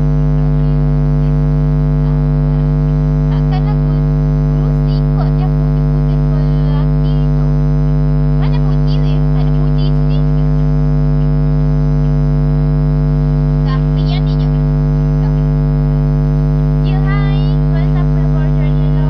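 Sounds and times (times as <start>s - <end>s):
faint voice: 0.0s - 7.7s, 8.3s - 11.4s
loud electrical hum: 0.0s - 19.0s.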